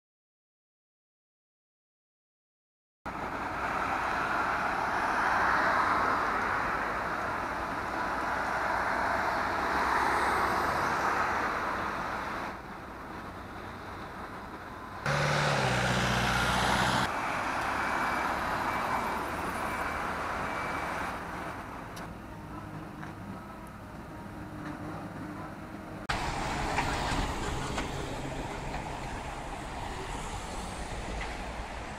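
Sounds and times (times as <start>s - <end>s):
vehicles passing: 3.1s - 31.9s
heavy engine hum: 12.8s - 17.1s, 20.4s - 31.9s.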